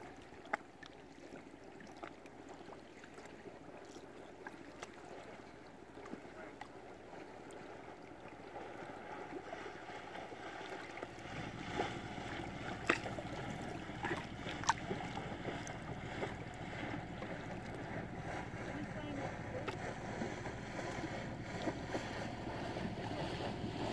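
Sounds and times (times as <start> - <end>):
lapping water: 0.0 - 23.9.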